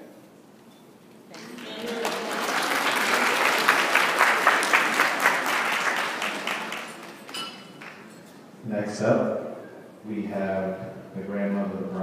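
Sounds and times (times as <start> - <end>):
crowd applauding: 1.3 - 8.2.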